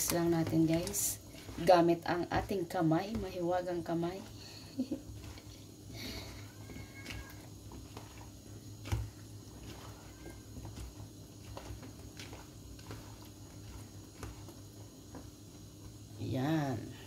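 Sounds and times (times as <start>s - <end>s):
hands mixing wet marinade: 0.0s - 17.0s
low steady hum: 0.0s - 17.0s.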